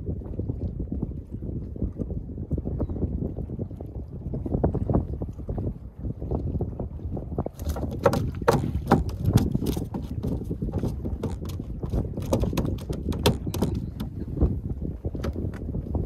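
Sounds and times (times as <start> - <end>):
wind buffeting microphone: 0.0 - 16.0
short clicks and knocks: 10.8 - 14.1.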